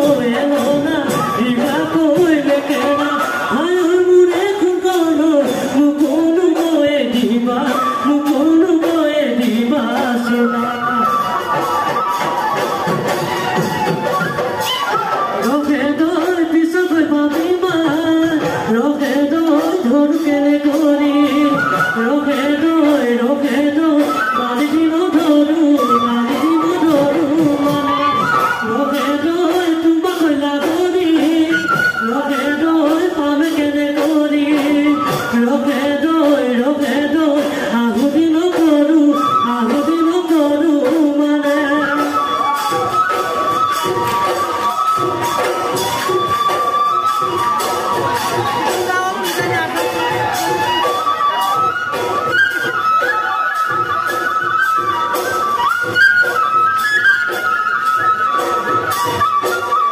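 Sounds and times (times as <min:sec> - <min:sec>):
person singing: 0:00.0 - 0:11.8, 0:15.4 - 0:42.9
drums beating a steady rhythm: 0:00.0 - 0:59.9.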